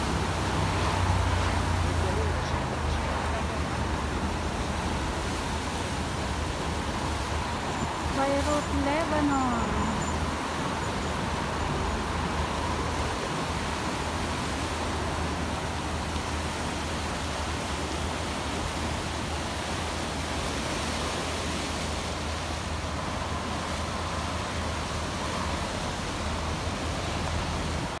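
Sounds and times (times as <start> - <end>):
sea waves washing over rocks: 0.0 - 28.0.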